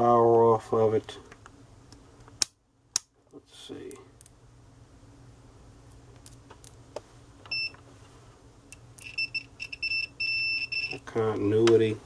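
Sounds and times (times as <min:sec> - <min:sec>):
multimeter short beeps: 0:09.0 - 0:11.0.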